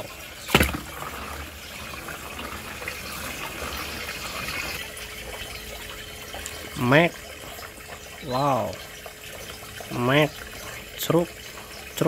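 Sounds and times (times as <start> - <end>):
water rushing down a drain: 0.0 - 12.0
toy splashing into water: 0.4 - 1.2.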